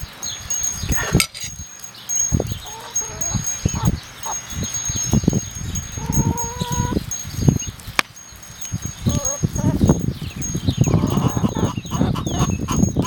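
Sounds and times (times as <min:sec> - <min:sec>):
thin high steady tone: 0:00.0 - 0:13.0
fowl clucking and calling: 0:02.6 - 0:04.4, 0:06.1 - 0:07.0, 0:10.9 - 0:12.9.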